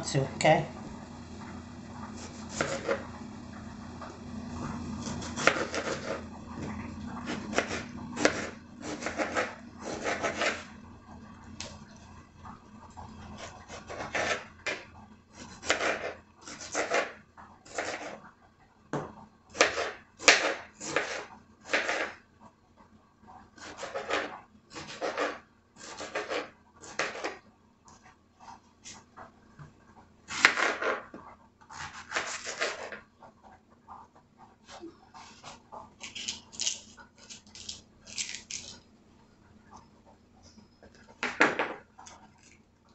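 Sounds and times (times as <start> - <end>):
knife cutting on plastic board: 2.2 - 3.0, 5.0 - 6.3, 7.2 - 10.7, 15.4 - 18.2, 19.6 - 22.2, 23.6 - 27.4, 31.7 - 33.0.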